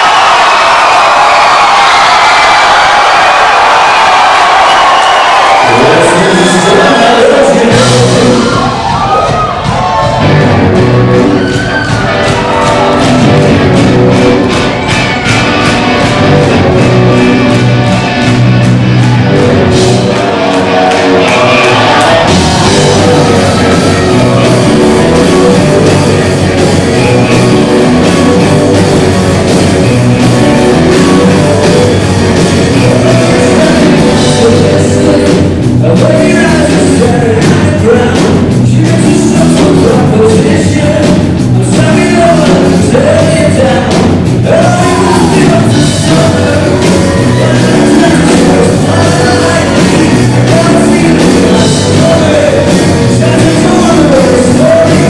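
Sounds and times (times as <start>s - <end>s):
rock band playing live: 0.0s - 55.0s
man singing: 5.6s - 8.8s, 21.2s - 55.0s.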